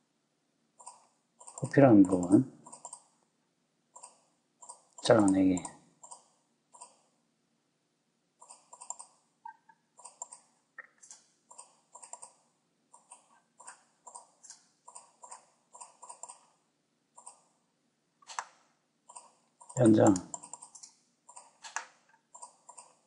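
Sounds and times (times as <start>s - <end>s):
mouse buttons clicking: 18.2s - 22.0s.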